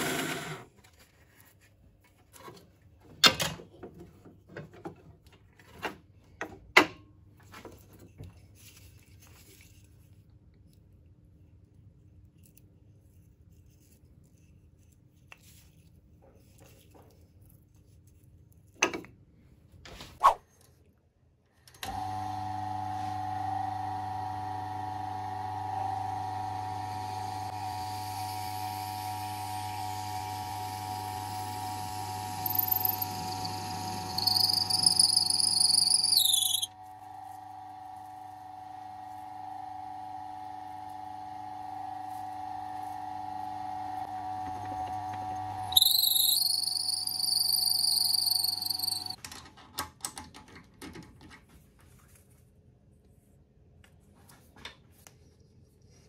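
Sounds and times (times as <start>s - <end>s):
lathe humming: 29.9s - 36.7s
drill bit squealing: 32.4s - 36.7s, 45.7s - 49.2s.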